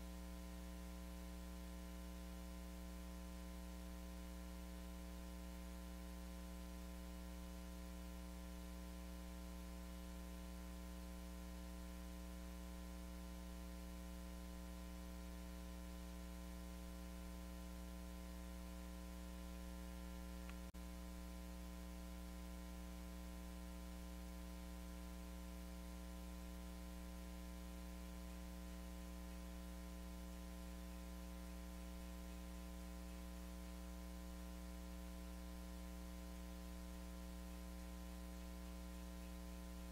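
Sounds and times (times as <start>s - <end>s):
electrical mains hum: 0.0s - 39.9s
faint click: 20.4s - 20.7s.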